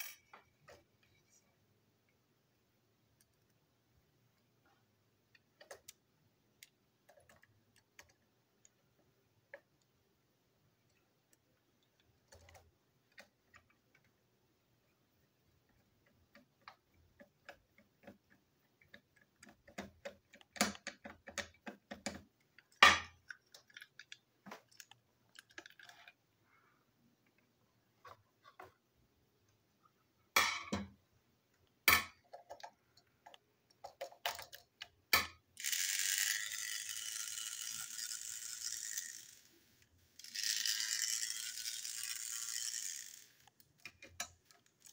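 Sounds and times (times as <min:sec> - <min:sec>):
plastic toy clicking and clacking: 0:11.9 - 0:14.2, 0:15.9 - 0:26.2, 0:32.0 - 0:39.5, 0:40.2 - 0:44.9
small object rattling when shaken: 0:35.6 - 0:39.5, 0:40.2 - 0:43.6.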